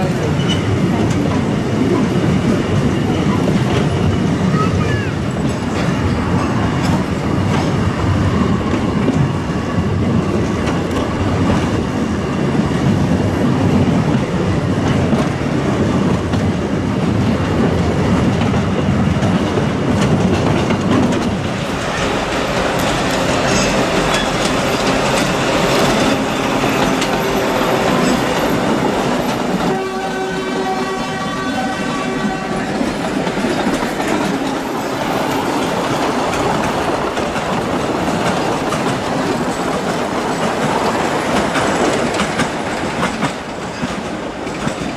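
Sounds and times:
train wheels clattering over track: 0:00.0 - 0:44.9
train horn steady tone: 0:29.6 - 0:33.0.

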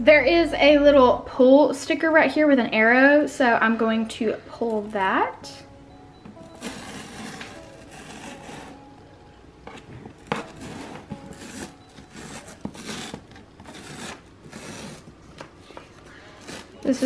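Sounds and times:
fingernails scratching cardboard: 0:06.6 - 0:08.8, 0:10.2 - 0:15.1.

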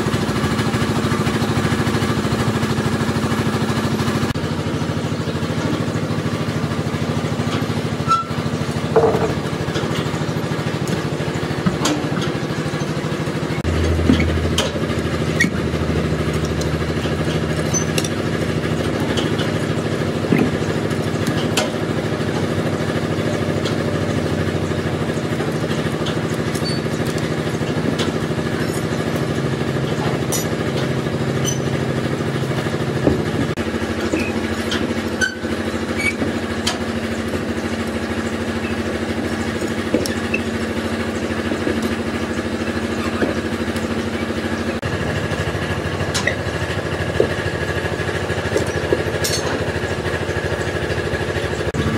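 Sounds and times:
motor humming: 0:00.0 - 0:51.9
clinks and knocks: 0:08.9 - 0:10.1, 0:48.5 - 0:49.7.

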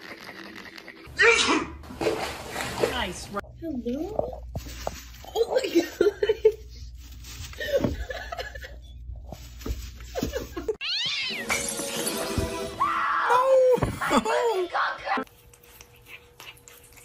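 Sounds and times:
cat yowling: 0:10.8 - 0:11.5
music: 0:11.3 - 0:13.1.

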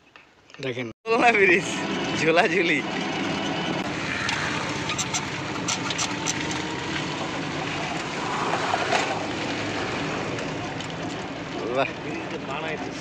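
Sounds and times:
vehicle engine hum and rush: 0:01.4 - 0:13.0.

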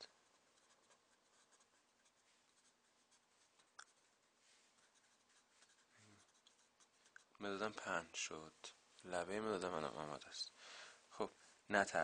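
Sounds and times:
pencil scratching on paper: 0:00.0 - 0:04.0, 0:04.7 - 0:07.4.

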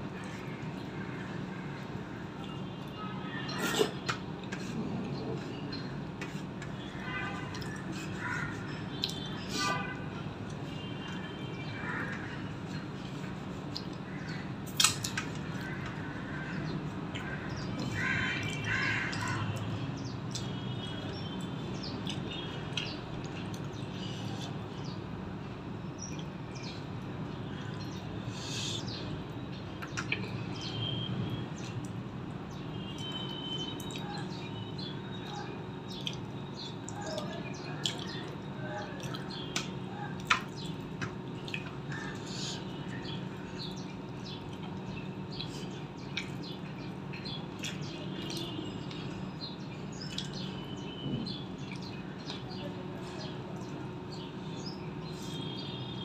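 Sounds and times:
birds chirping: 0:32.5 - 0:56.0.

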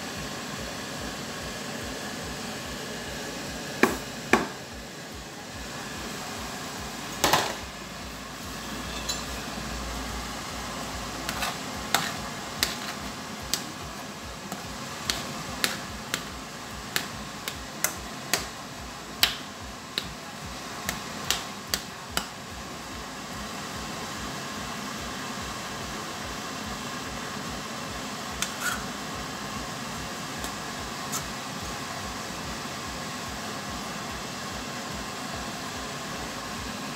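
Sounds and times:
cookware clinking: 0:08.9 - 0:09.4.

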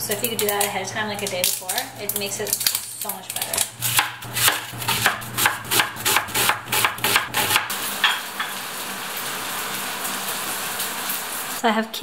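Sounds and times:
knife chopping onion on board: 0:03.8 - 0:07.7
spatula tapping: 0:04.0 - 0:08.5
meat sizzling in a frying pan: 0:07.6 - 0:11.6.

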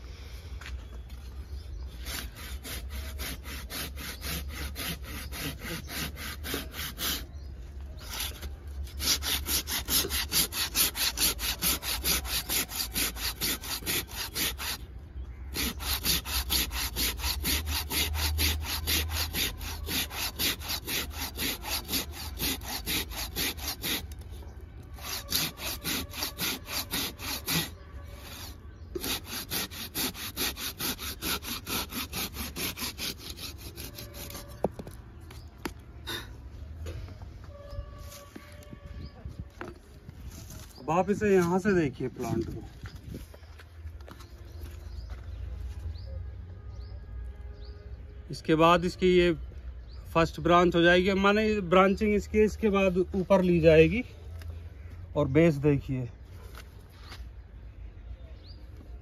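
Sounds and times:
hand saw rasping through wood: 0:02.0 - 0:07.4, 0:08.0 - 0:14.9, 0:15.5 - 0:24.2, 0:25.0 - 0:34.7.

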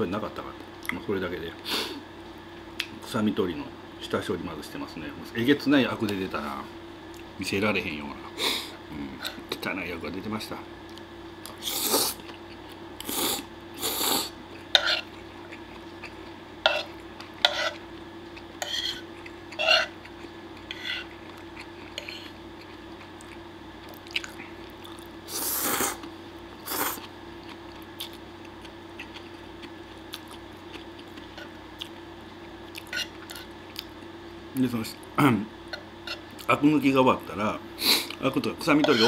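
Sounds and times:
faint steady hum: 0:00.0 - 0:39.0
man slurping and chewing: 0:11.6 - 0:12.3, 0:13.0 - 0:14.3, 0:24.9 - 0:27.1.

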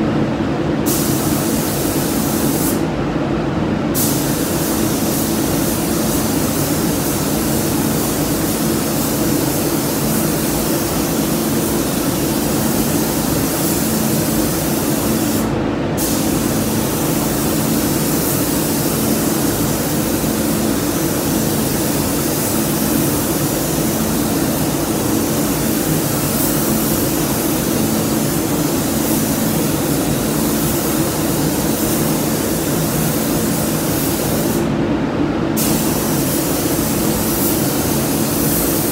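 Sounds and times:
paint spray gun hissing: 0:00.9 - 0:02.8, 0:04.0 - 0:34.7, 0:35.6 - 0:38.9.

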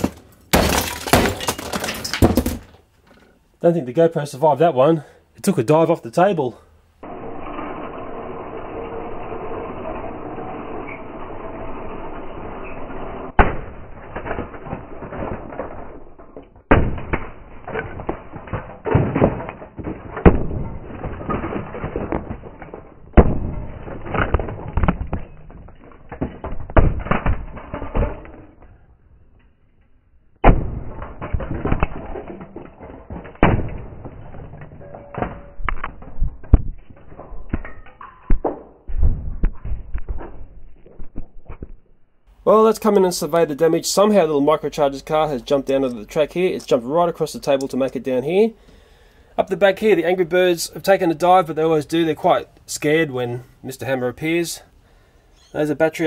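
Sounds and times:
hammer smashing plastic: 0:00.0 - 0:02.9, 0:13.4 - 0:28.6, 0:30.4 - 0:37.8
clattering debris: 0:00.0 - 0:03.5, 0:12.6 - 0:48.5.

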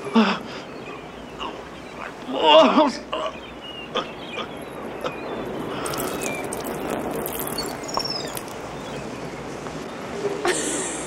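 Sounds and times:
steady outdoor noise: 0:00.0 - 0:11.0
high bird chirps: 0:03.4 - 0:09.1.

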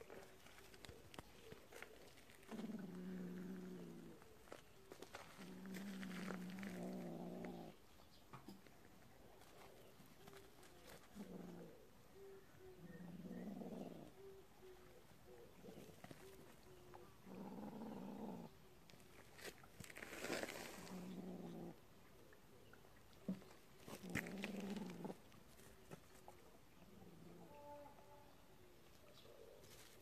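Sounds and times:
kitten growling low: 0:02.4 - 0:04.2, 0:05.4 - 0:07.8, 0:11.1 - 0:11.9, 0:12.8 - 0:14.2, 0:17.2 - 0:18.7, 0:20.8 - 0:21.8, 0:23.9 - 0:25.3.

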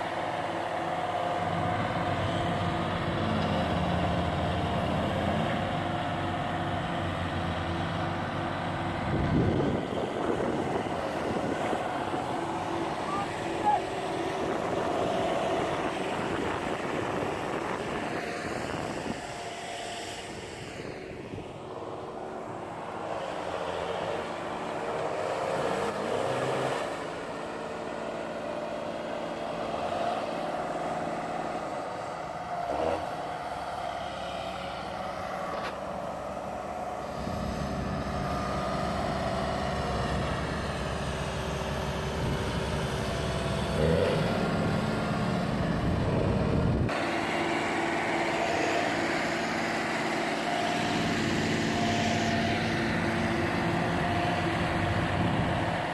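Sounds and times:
tractor diesel engines revving: 0:00.0 - 0:55.9
heavy low rumble: 0:45.6 - 0:46.9.

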